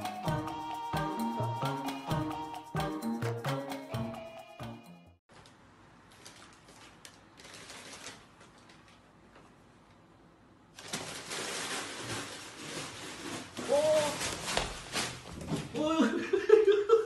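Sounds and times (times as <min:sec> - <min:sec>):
paper bag crinkling: 0:05.4 - 0:09.1, 0:10.7 - 0:15.5
paper crackling and scrabbling: 0:06.1 - 0:09.0, 0:10.8 - 0:15.7.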